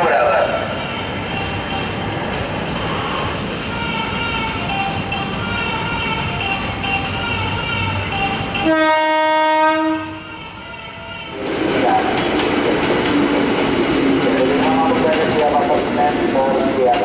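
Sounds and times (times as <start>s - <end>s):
train rumbling by: 0.0s - 17.0s
locomotive horn blast: 8.6s - 10.6s.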